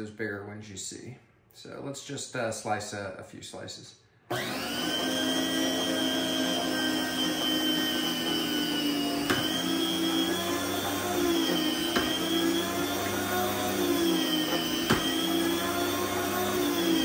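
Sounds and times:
meat slicer motor whining: 0:04.3 - 0:17.0.

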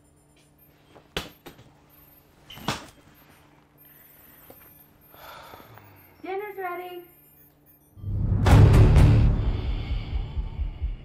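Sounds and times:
faint steady hum: 0:00.0 - 0:08.0.

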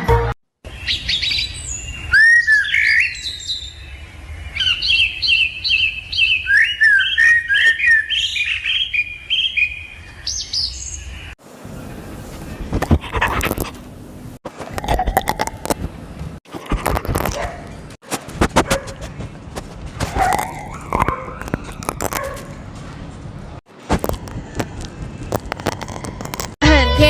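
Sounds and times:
lovebirds chirping: 0:00.7 - 0:12.7.

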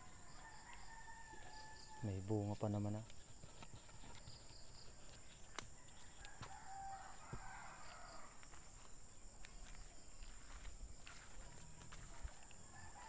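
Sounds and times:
rooster crowing: 0:00.0 - 0:02.0, 0:05.8 - 0:08.6, 0:12.0 - 0:13.0.

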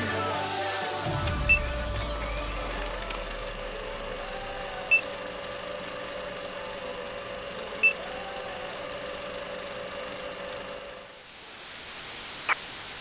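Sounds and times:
electronic drone: 0:00.0 - 0:09.6.

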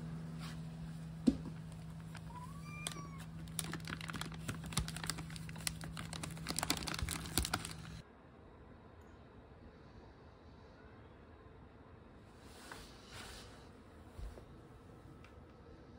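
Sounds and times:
cat crunching dry kibble: 0:01.6 - 0:08.0.

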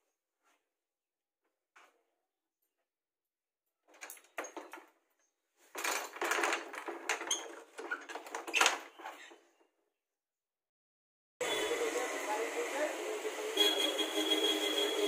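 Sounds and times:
curtain rustling: 0:05.6 - 0:09.6.

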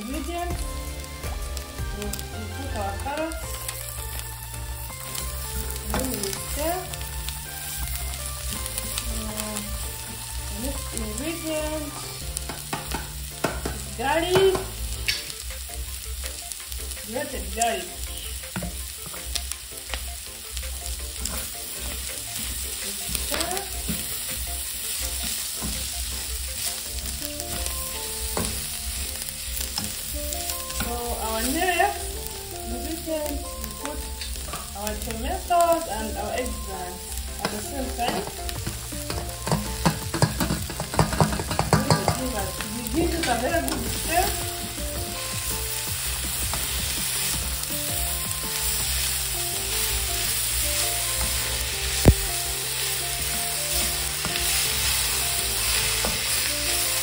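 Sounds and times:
food sizzling in a wok: 0:00.0 - 0:57.0
ingredients clattering into pan: 0:05.0 - 0:09.5, 0:10.1 - 0:32.0, 0:33.1 - 0:47.8
spatula scraping a pan: 0:20.7 - 0:32.0, 0:37.4 - 0:47.7.

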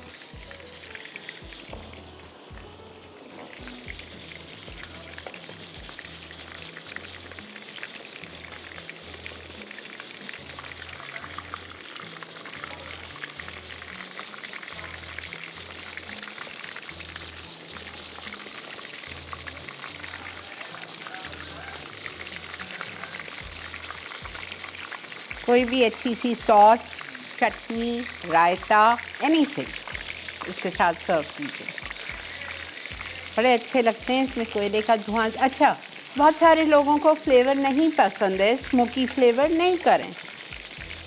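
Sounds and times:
meat sizzling in a frying pan: 0:00.0 - 0:41.0.

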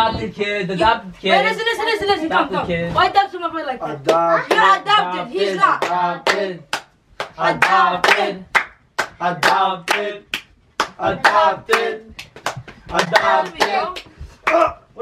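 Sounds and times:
voices chanting in a sing-song: 0:03.9 - 0:14.2
hands clapping sharply: 0:05.8 - 0:14.7.

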